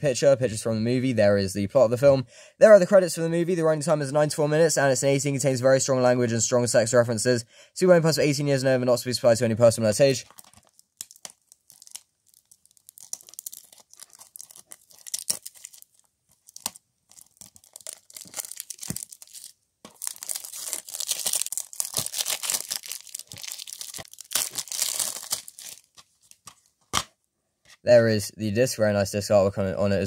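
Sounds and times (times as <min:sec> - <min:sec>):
plastic shrink-wrap tearing and crinkling: 0:10.2 - 0:26.4.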